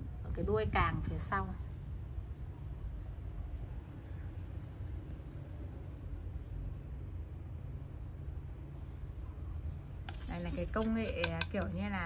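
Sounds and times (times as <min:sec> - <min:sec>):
faint high-pitched tone: 0:02.4 - 0:06.9.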